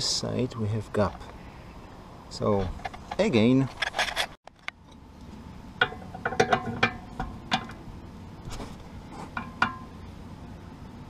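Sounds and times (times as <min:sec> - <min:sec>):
metal spanner clinking: 0:05.8 - 0:07.8.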